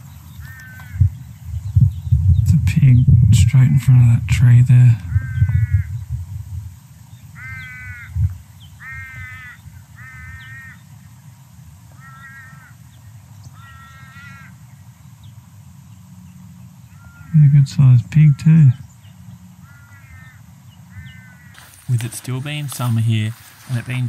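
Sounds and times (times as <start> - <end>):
low microphone rumble: 0.0 - 8.7
crow cawing: 0.4 - 1.1, 5.1 - 6.0, 7.3 - 10.9, 11.9 - 12.9, 13.5 - 14.6, 16.9 - 17.4, 19.6 - 24.0.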